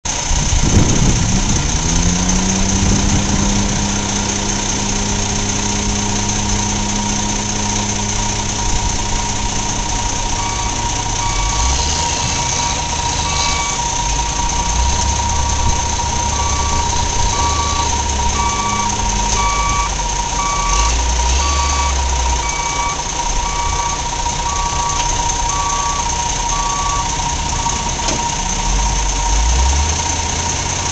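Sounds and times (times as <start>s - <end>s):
truck diesel engines running: 0.0s - 30.9s
reversing alarm beeping: 6.8s - 29.9s.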